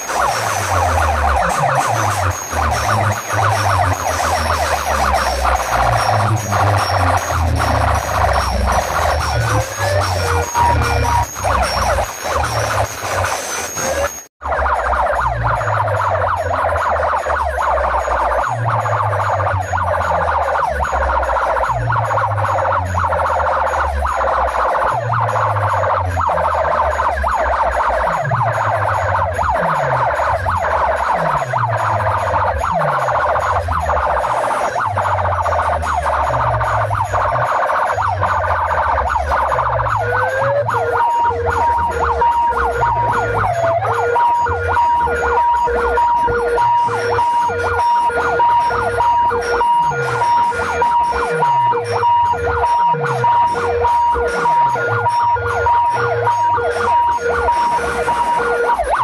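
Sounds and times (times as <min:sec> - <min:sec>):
deep bass drops: 0:00.0 - 0:58.9
pulsing beeps at two pitches: 0:00.0 - 0:59.0
rising electronic glide: 0:00.0 - 0:59.0
siren-like electronic tones: 0:00.0 - 0:59.0.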